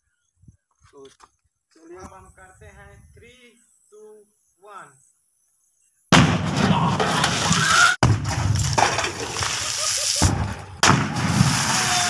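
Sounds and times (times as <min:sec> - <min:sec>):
firecracker blast in water: 0:07.4 - 0:12.0.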